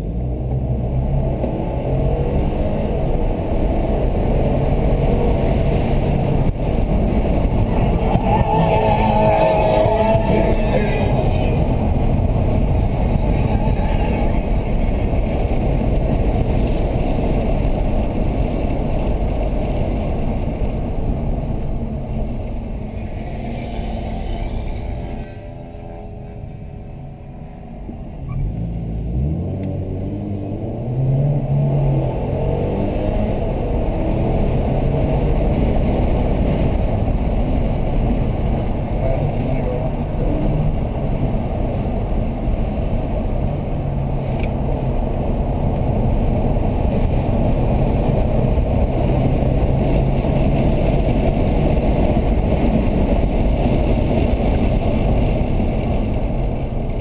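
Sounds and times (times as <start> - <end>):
car engine accelerating: 0.0 - 57.0
road noise: 0.0 - 57.0.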